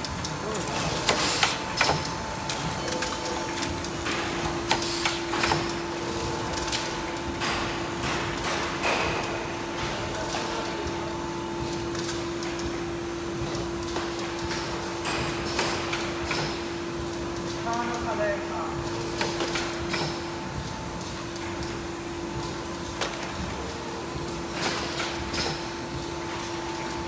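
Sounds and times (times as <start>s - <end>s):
steady machine hum: 0.0s - 27.0s
machine clicks and knocks: 0.3s - 5.8s, 6.5s - 10.7s, 13.4s - 18.1s, 18.9s - 20.3s, 24.5s - 27.0s.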